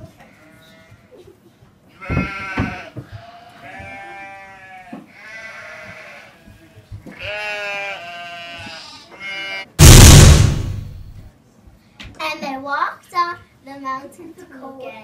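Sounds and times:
loud burst of noise: 9.8 - 11.2.

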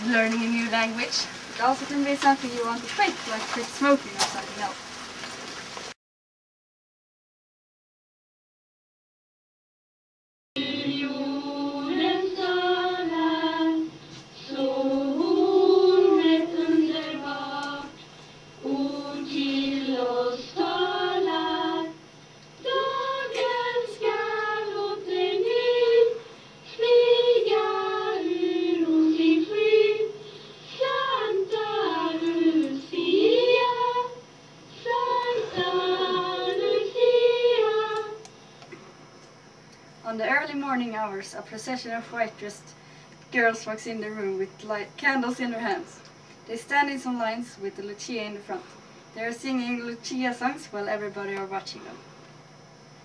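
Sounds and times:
girls singing unaccompanied: 0.0 - 4.6, 10.6 - 18.0, 18.6 - 22.0, 22.6 - 38.3.

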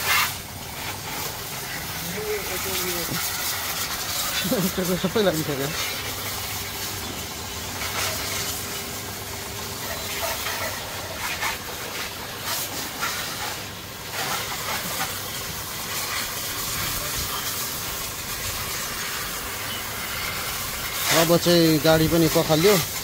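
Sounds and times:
water jet spraying: 0.0 - 23.0.

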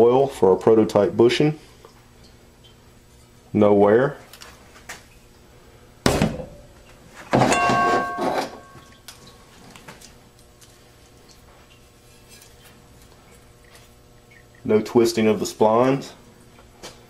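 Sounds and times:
metal drum clanking and ringing: 7.4 - 9.0.

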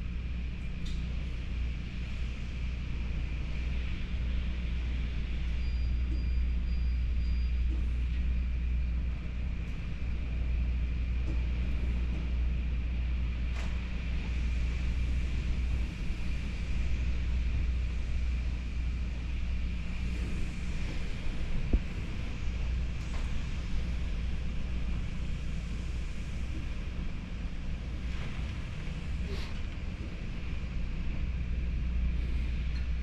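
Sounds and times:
wind rumble: 7.7 - 33.0.

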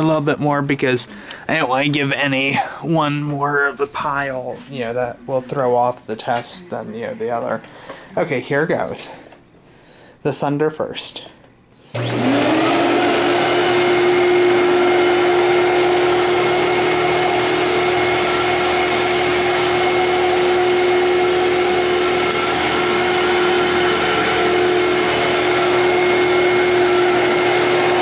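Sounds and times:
vacuum cleaner motor whine: 11.9 - 28.0.

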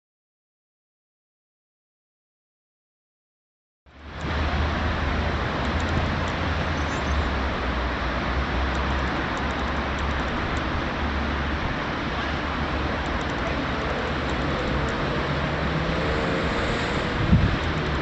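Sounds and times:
passing vehicle drone: 3.9 - 18.0
road traffic noise: 3.9 - 18.0.

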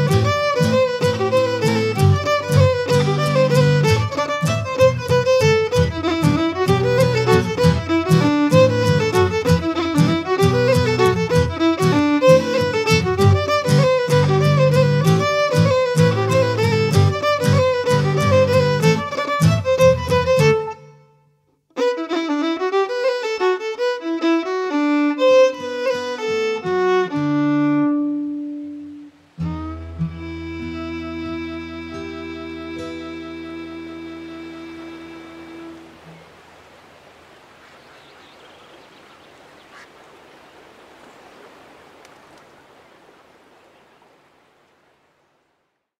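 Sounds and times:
fiddle playing a fast tune: 0.0 - 21.1, 21.7 - 36.2
acoustic guitar accompaniment: 0.0 - 36.2
water rushing over spillway: 34.6 - 45.5.

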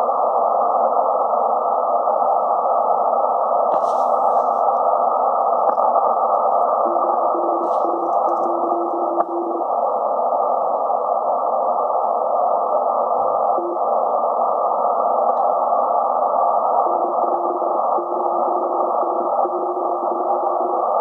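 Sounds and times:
radio band hiss: 0.0 - 21.0
faint morse code signal: 5.4 - 9.7, 13.4 - 14.4, 15.0 - 21.0.

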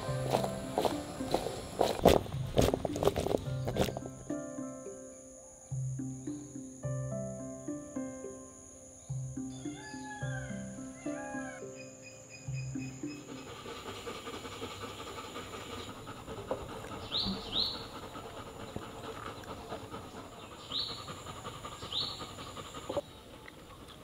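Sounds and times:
outdoor background hiss: 0.0 - 24.0
bird chirping: 8.7 - 24.0.

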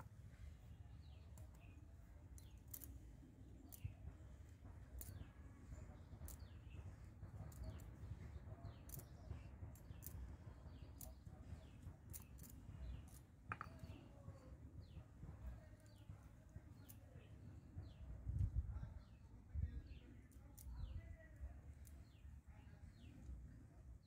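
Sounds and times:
knock: 13.5 - 13.9.

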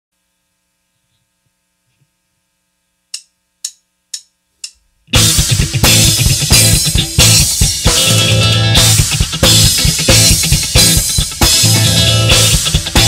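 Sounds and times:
count-in clicks: 3.1 - 4.8
rock band playing: 5.1 - 13.0.

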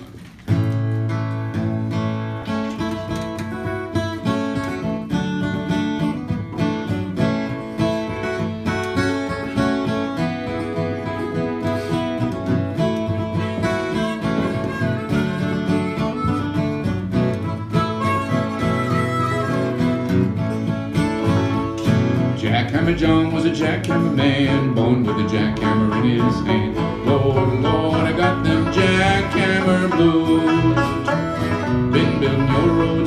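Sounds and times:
acoustic guitars: 0.0 - 33.0
banjo playing: 1.1 - 33.0.

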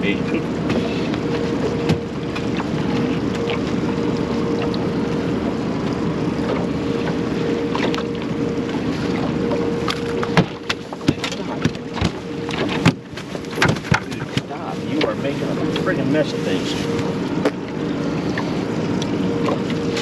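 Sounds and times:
boat motor whining: 0.0 - 20.0
sharp clicks and knocks: 9.9 - 14.5.

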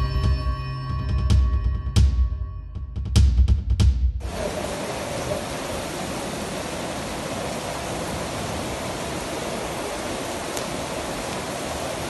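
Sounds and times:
heavy rain hissing: 4.2 - 12.0.

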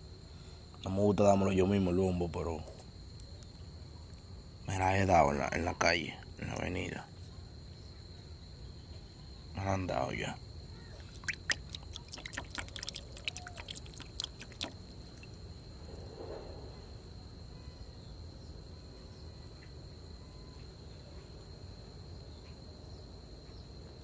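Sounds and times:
high-pitched insect trill: 0.0 - 24.0
pond water splashing and dripping: 10.8 - 15.4.

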